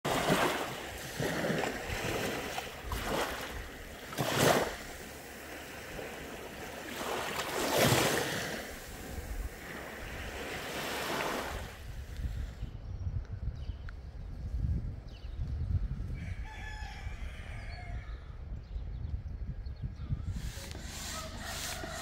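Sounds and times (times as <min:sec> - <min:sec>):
sea waves breaking on sand: 0:00.0 - 0:11.9.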